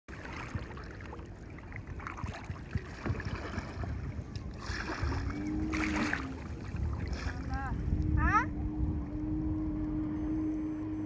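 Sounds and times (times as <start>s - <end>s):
paddle splashing in water: 0.1s - 7.8s
water washing: 0.1s - 8.0s
wind on microphone: 0.1s - 11.0s.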